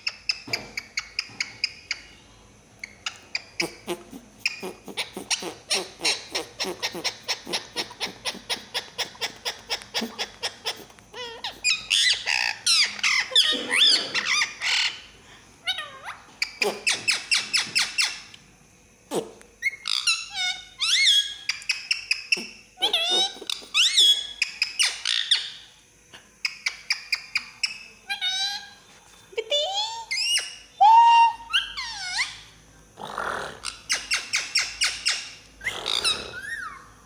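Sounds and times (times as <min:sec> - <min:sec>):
parakeet squawk: 0:02.8 - 0:18.2, 0:19.1 - 0:25.6, 0:31.4 - 0:32.4, 0:33.6 - 0:37.0
parakeet warbling chatter: 0:02.8 - 0:18.2, 0:19.1 - 0:25.6, 0:31.4 - 0:32.5, 0:33.6 - 0:37.0.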